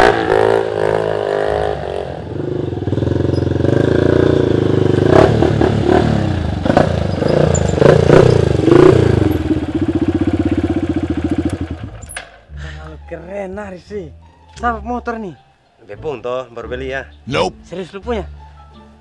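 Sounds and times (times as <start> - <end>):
motorcycle engine revving: 0.0 - 12.2.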